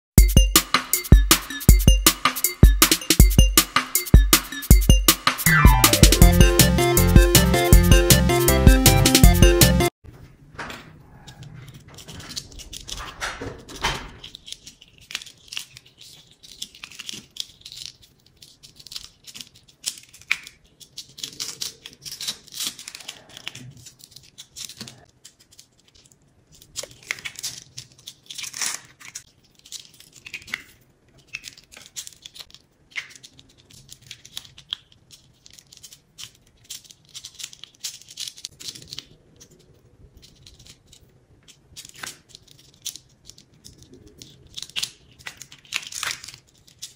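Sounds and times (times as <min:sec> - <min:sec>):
adhesive film peeling off card: 0:11.9 - 0:39.6, 0:40.3 - 0:46.9.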